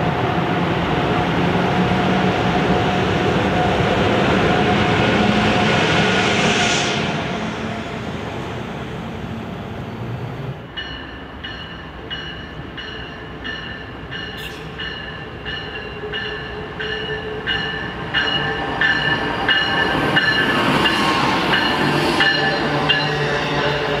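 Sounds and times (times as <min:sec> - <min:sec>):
train running noise: 0:00.0 - 0:24.0
locomotive bell ringing: 0:10.7 - 0:24.0.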